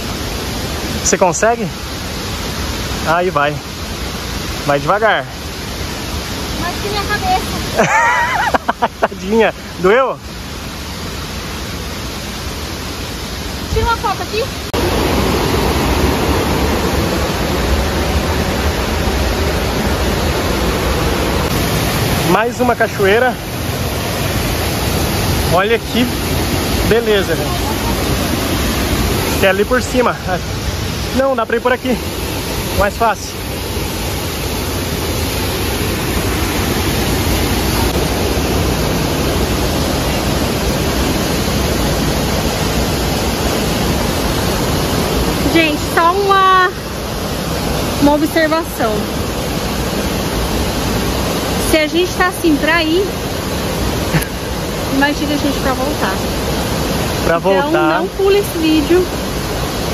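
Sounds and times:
river and waterfall rushing: 0:00.0 - 0:59.9.

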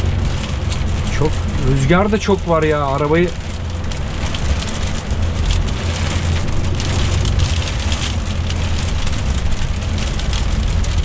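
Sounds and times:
diesel truck engine drone: 0:00.0 - 0:11.0
tyre and road noise: 0:00.0 - 0:11.0.

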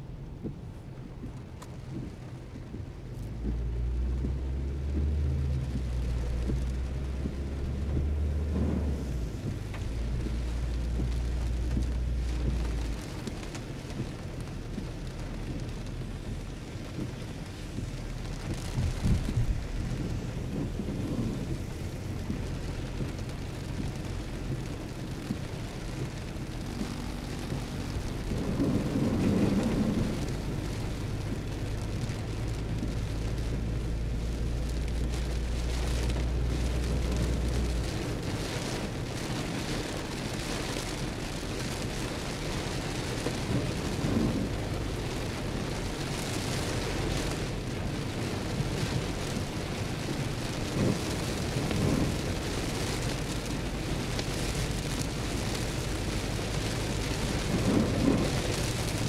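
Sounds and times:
low engine hum: 0:00.0 - 0:59.0
rain on car roof: 0:00.0 - 0:59.0
tyre hiss on wet road: 0:17.3 - 0:59.0.

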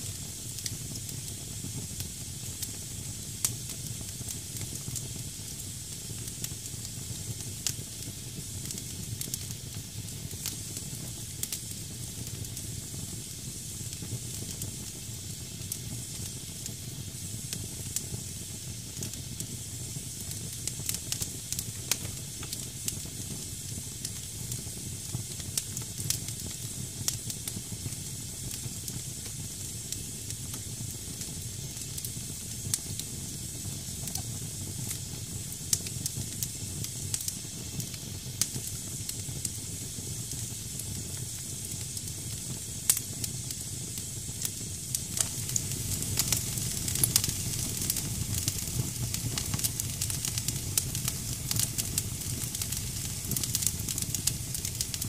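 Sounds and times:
fire crackling and popping: 0:00.0 - 0:55.0
firewood hissing: 0:27.5 - 0:55.0.

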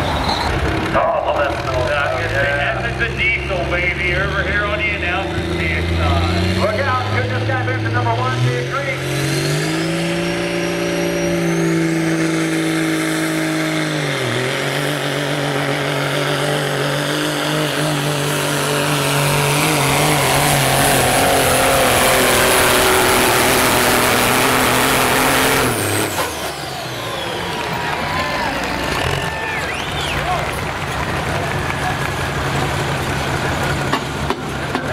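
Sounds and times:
turbo whistle: 0:00.0 - 0:00.6
diesel truck engine drone: 0:00.0 - 0:34.9.

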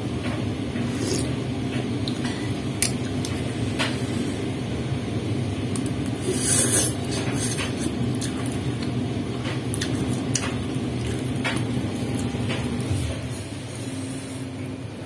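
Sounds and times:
steady low hum: 0:00.0 - 0:15.0
noodle slurp: 0:00.8 - 0:01.3, 0:06.2 - 0:08.7.

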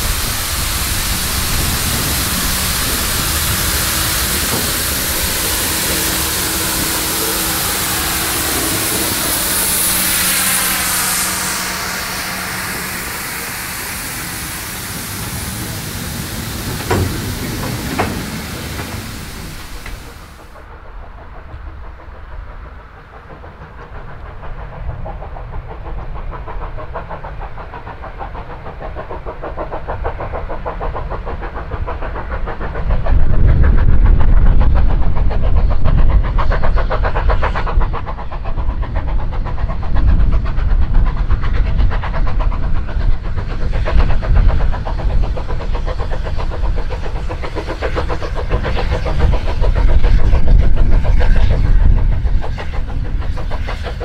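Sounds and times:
heavy low rumble: 0:00.0 - 0:20.5
steam locomotive exhaust beat: 0:00.0 - 0:54.0.

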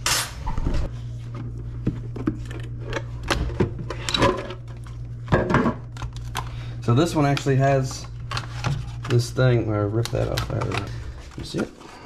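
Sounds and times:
steady low hum: 0:00.0 - 0:12.0
packaging being handled: 0:05.9 - 0:12.0.

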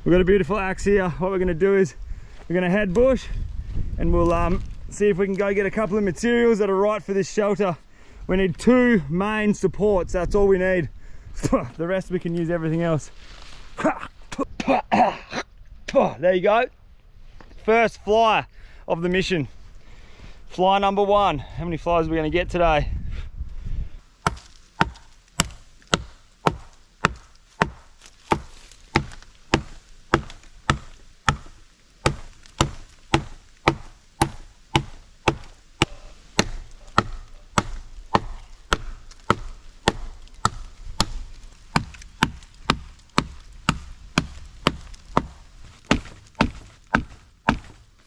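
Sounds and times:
hatchet chopping log: 0:24.2 - 0:48.0.

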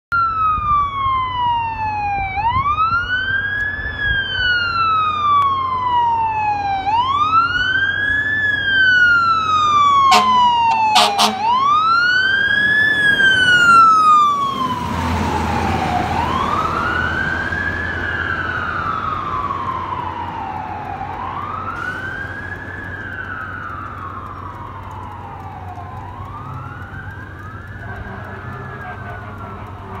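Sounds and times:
fire engine siren wailing: 0:00.1 - 0:30.0
truck engine and road noise: 0:00.1 - 0:30.0
horn blasts: 0:10.0 - 0:11.6, 0:27.8 - 0:30.0.

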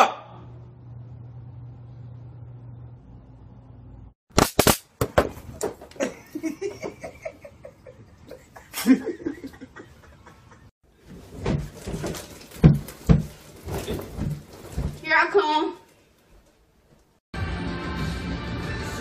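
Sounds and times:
people laughing: 0:06.0 - 0:10.7
thumps and scuffling: 0:11.0 - 0:15.5.

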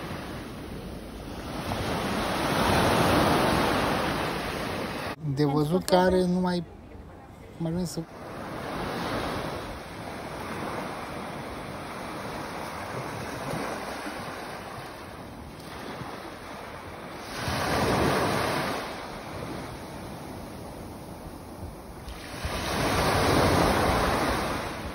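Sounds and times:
sea waves breaking on sand: 0:00.0 - 0:05.2, 0:08.0 - 0:24.9.

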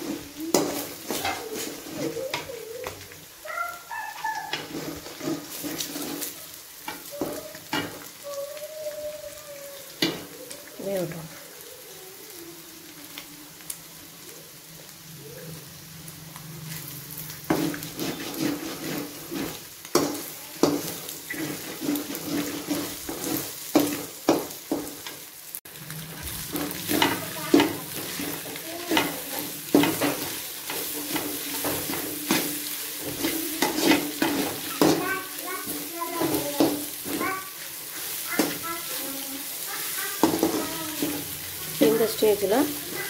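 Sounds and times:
metal spatula scraping pan: 0:00.0 - 0:02.6, 0:04.2 - 0:08.1, 0:16.8 - 0:25.2, 0:26.0 - 0:39.1, 0:39.8 - 0:43.0
eggs and vegetables sizzling: 0:00.0 - 0:43.0.

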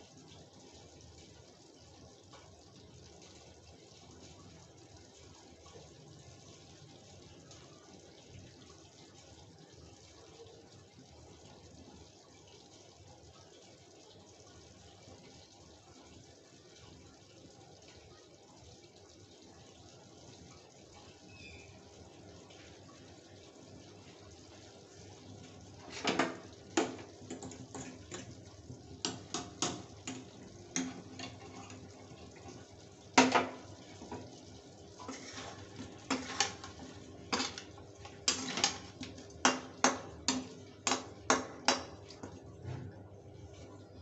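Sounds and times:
metal spatula scraping a pan: 0:30.8 - 0:31.9, 0:35.0 - 0:39.1.

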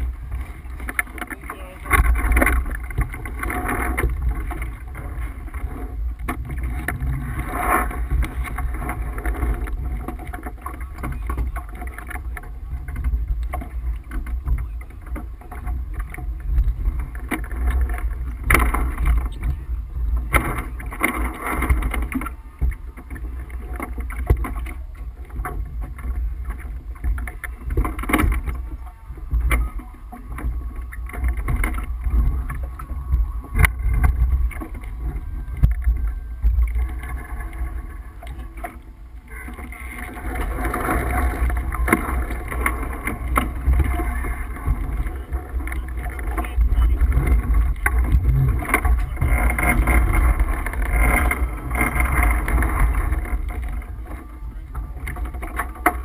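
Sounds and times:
water rushing past hull: 0:00.0 - 0:56.0
wind buffeting microphone: 0:00.0 - 0:56.0.

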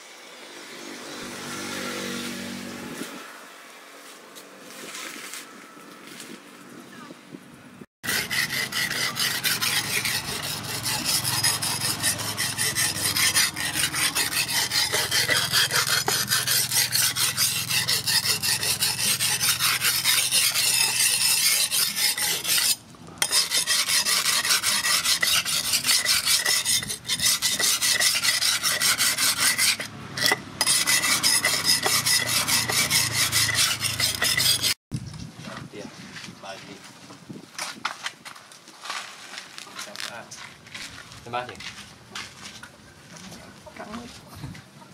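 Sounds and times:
knife rasping on sharpening stone: 0:08.0 - 0:34.8.

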